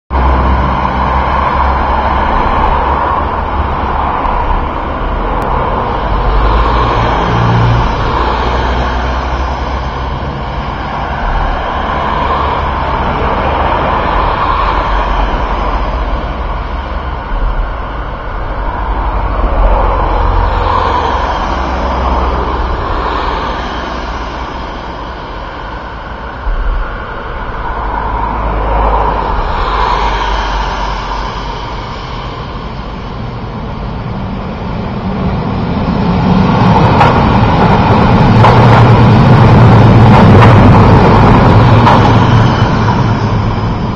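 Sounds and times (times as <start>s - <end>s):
vehicle rumble: 0.1s - 43.9s
vehicle hiss: 28.6s - 34.6s.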